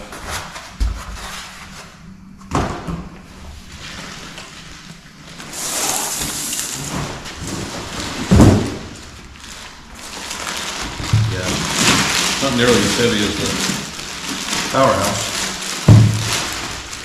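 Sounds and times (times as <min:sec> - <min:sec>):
foam and cardboard packaging handled: 0:03.6 - 0:17.0
plastic wrap crinkling: 0:03.6 - 0:17.0
heavy thud: 0:08.3 - 0:09.0, 0:15.9 - 0:16.4.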